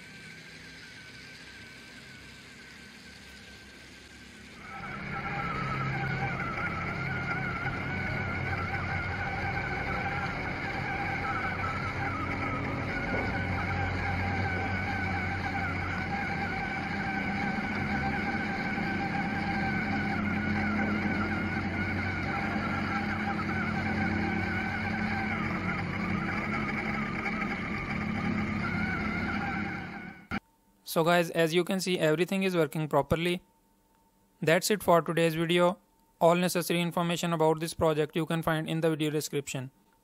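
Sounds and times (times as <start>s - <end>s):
small electric motors whining: 0.0s - 30.4s.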